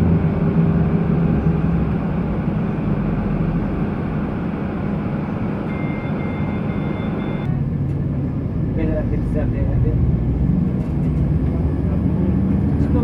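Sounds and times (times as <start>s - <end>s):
wheels rumbling on rails: 0.0s - 13.0s
high thin beep: 5.7s - 7.5s.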